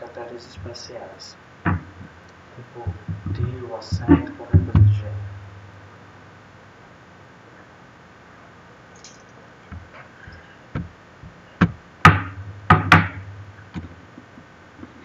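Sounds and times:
sharp ringing knocks: 11.6 - 13.8.

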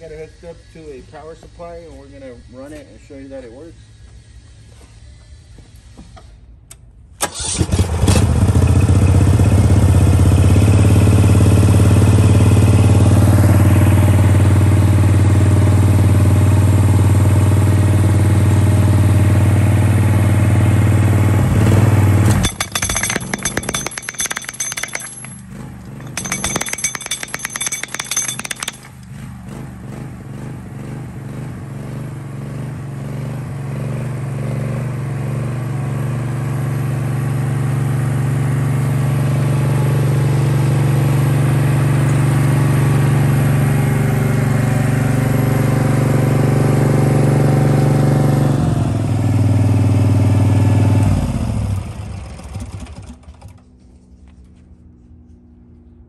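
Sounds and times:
hydraulic breaker hammering wood: 22.3 - 29.0.

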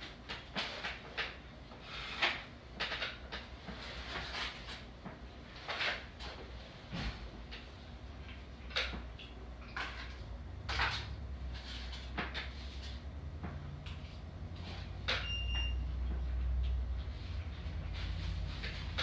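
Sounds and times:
person eating at a table: 7.2 - 19.0
brief high beep: 15.2 - 15.9.

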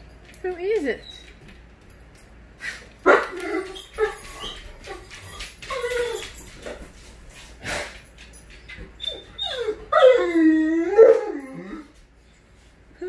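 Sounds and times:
dog whining: 3.1 - 6.8, 8.9 - 12.0.

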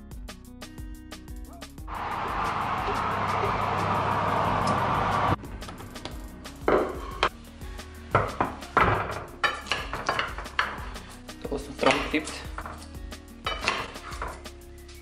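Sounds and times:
background music: 0.0 - 15.0
glass dish knocking on wooden table: 6.7 - 7.0
knife clinking against glass: 13.5 - 13.9.

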